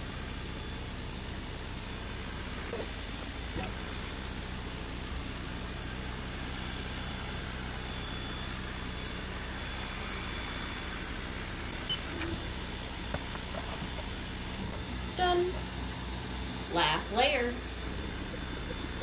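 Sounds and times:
laser engraver fan hiss: 0.0s - 19.0s
low hum: 1.0s - 19.0s.

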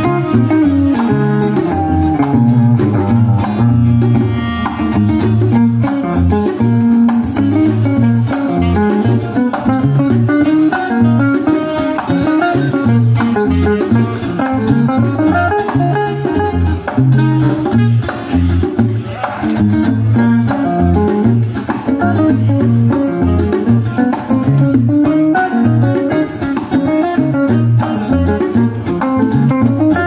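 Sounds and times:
bass line: 0.0s - 30.0s
congas: 0.0s - 30.0s
electric guitar playing: 0.0s - 30.0s.

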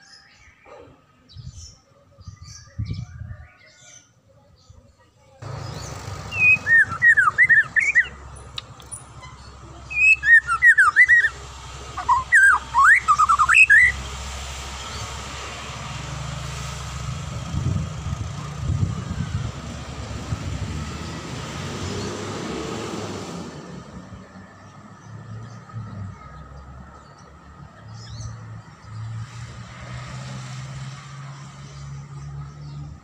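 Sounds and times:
bird singing whistled notes: 5.6s - 11.4s, 12.0s - 14.0s.

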